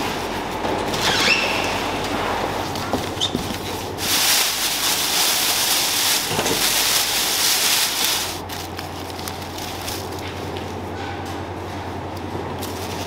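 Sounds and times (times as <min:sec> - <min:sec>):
low machine hum: 0:00.0 - 0:13.0
plastic bag crinkling: 0:02.6 - 0:10.8.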